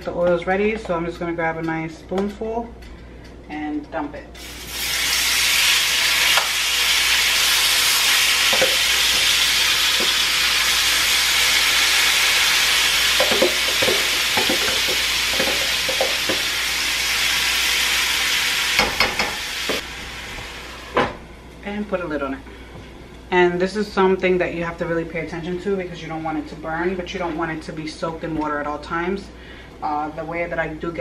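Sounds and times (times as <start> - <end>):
meat sizzling in oil: 4.4 - 20.9.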